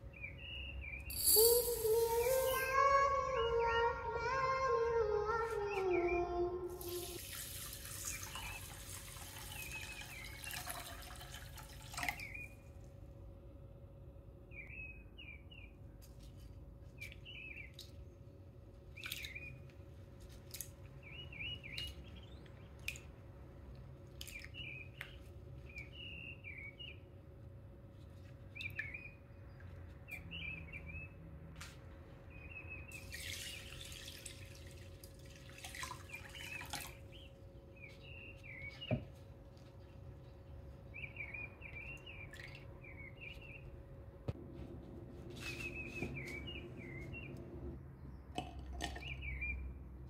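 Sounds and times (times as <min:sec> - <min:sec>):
faint steady hum: 0:00.0 - 0:30.9
small bird chirping: 0:00.1 - 0:03.9
water splashing in bowl: 0:06.8 - 0:12.4, 0:33.0 - 0:37.1.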